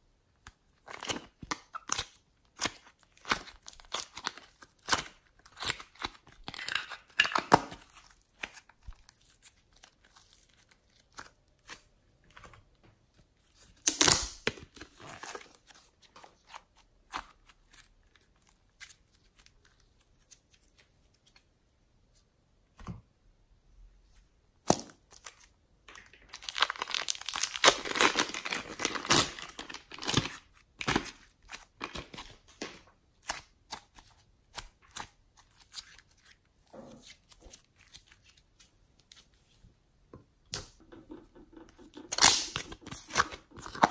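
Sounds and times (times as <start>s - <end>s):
sticky slime clicks and crackles: 41.9s - 43.9s.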